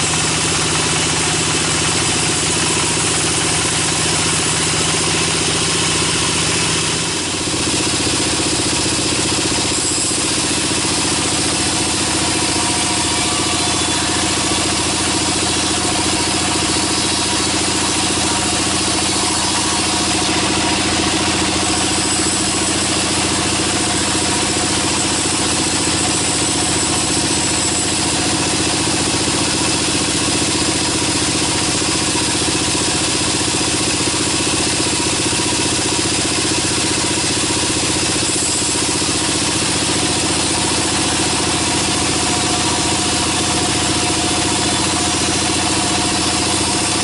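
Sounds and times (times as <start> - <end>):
sawmill machine hum: 0.0 - 47.0
band blade sawing log: 9.6 - 31.2.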